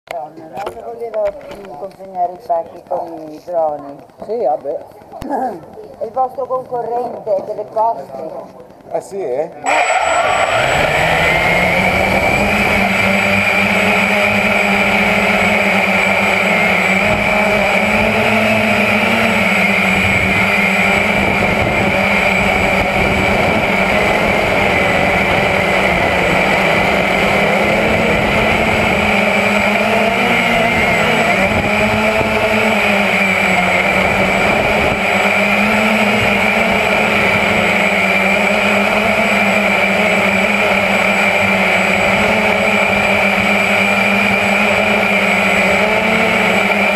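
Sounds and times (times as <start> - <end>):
drone propellers whining: 9.6 - 46.9.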